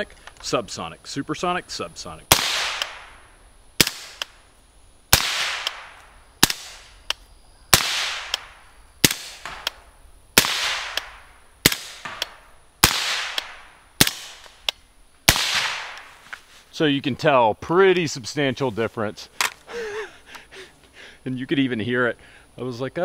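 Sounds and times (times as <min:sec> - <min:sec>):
suppressed rifle shots: 0:02.3 - 0:03.2, 0:03.8 - 0:04.4, 0:05.1 - 0:16.2
sonic crack: 0:02.3 - 0:04.4, 0:05.1 - 0:07.2, 0:07.8 - 0:16.2.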